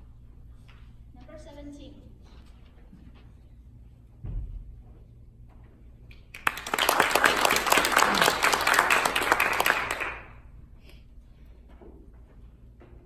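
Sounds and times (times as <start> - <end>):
audience applauding: 6.3 - 10.4.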